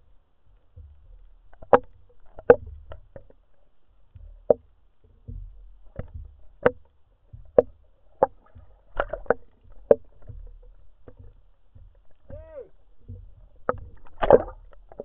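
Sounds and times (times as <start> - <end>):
sharp underwater clicks: 4.1 - 15.0.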